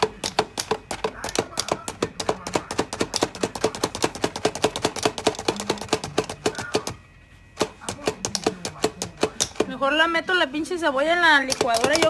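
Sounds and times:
food chopper clacking: 0.0 - 7.0, 11.5 - 12.0.

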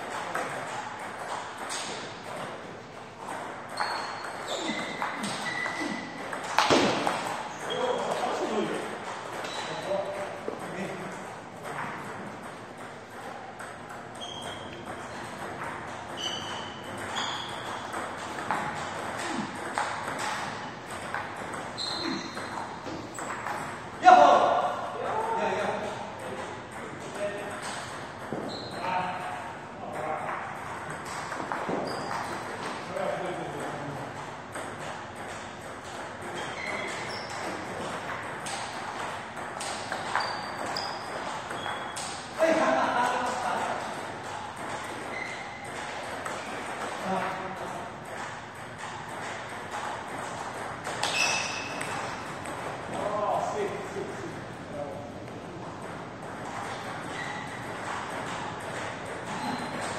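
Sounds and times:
short high squeaks: 3.7 - 6.0, 14.2 - 14.8, 16.1 - 17.8, 21.8 - 23.3, 28.5 - 28.9, 31.8 - 32.4, 36.4 - 37.6, 40.0 - 42.1, 45.0 - 45.7, 51.0 - 51.9, 57.0 - 57.7, 59.3 - 59.9.

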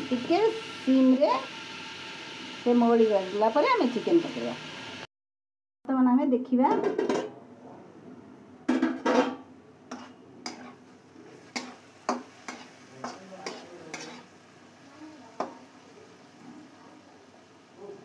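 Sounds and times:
vegetables sizzling: 0.0 - 5.1, 9.8 - 18.0
metal lid clattering: 8.7 - 10.6
metal spatula scraping a pan: 9.0 - 14.3.

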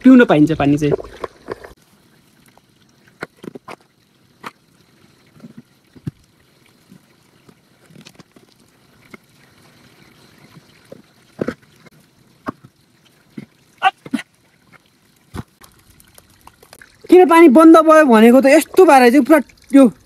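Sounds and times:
faint water trickle: 1.7 - 20.0.

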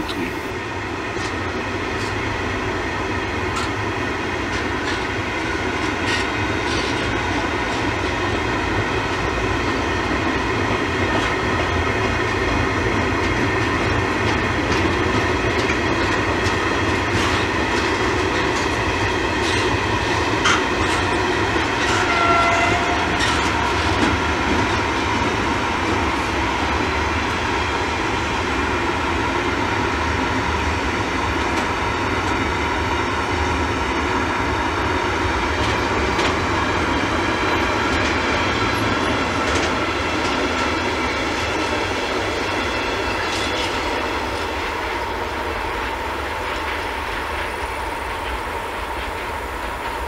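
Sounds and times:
diesel locomotive engine running: 0.0 - 50.0
train wheels clacking over rail joints: 3.5 - 8.2, 10.8 - 26.1, 35.5 - 50.0.

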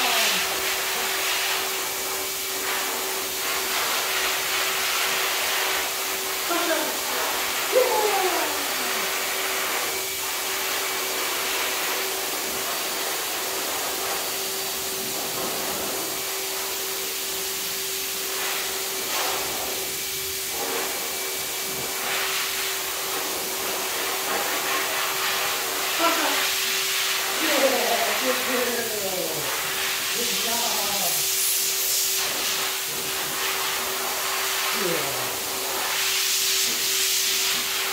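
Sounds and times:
electric blower hissing: 0.0 - 37.9.

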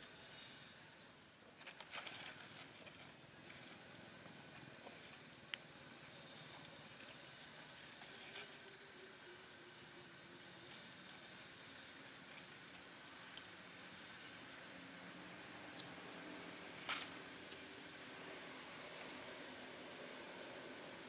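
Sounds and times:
rustling in dry leaves: 1.6 - 18.0.

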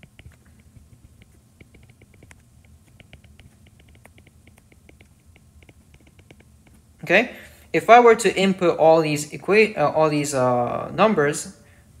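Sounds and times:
stylus tapping on tablet screen: 0.0 - 6.9.

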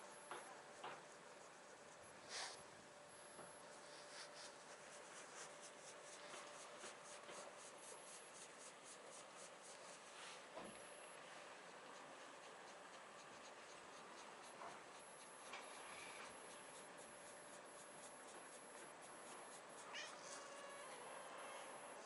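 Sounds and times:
hand stroking fur: 1.2 - 2.6, 3.7 - 10.5
faint cat meows: 19.8 - 22.0.

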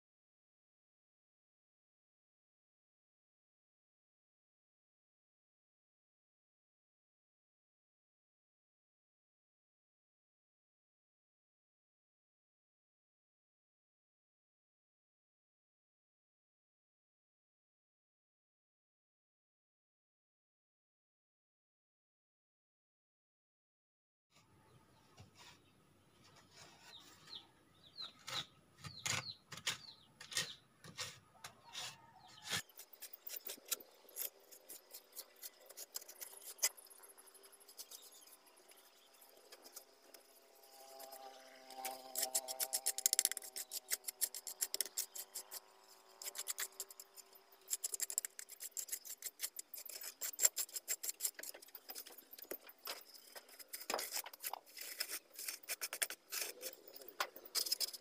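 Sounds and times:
trowel scraping wet mortar: 26.4 - 40.3, 41.0 - 58.0.

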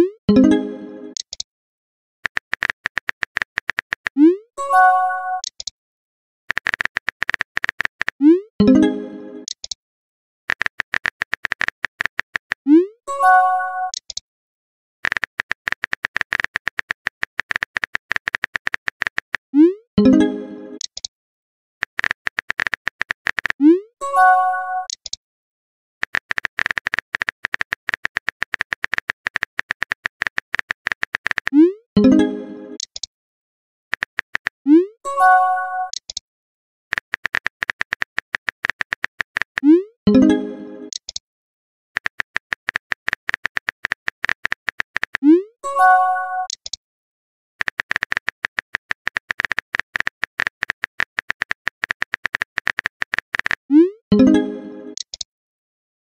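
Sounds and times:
keyboard typing clicks: 0.4 - 1.4, 2.2 - 4.4, 5.3 - 5.7, 6.5 - 9.8, 10.5 - 12.6, 13.8 - 14.2, 15.0 - 19.4, 20.0 - 21.1, 21.8 - 23.7, 24.8 - 25.2, 26.0 - 33.1, 33.9 - 34.6, 35.8 - 36.2, 36.9 - 41.2, 42.0 - 45.4, 46.3 - 46.8, 47.6 - 55.3.

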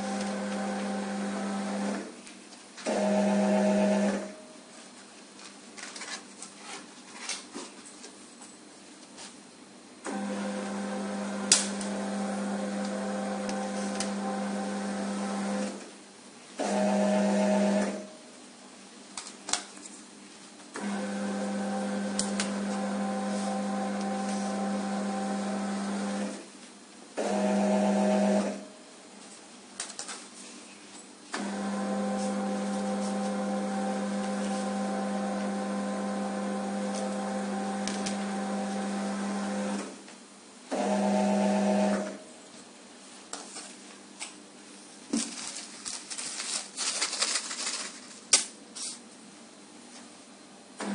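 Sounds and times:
conveyor belt humming: 0.0 - 2.1, 10.0 - 15.9, 20.7 - 26.4, 31.3 - 39.9.

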